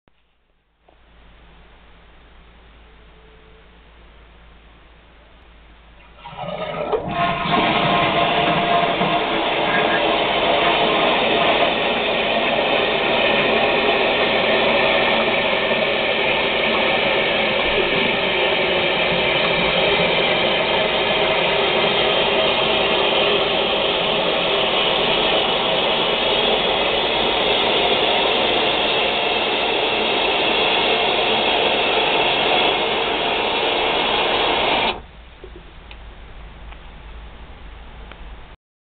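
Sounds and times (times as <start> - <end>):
toilet tank refilling hiss: 6.0 - 35.0.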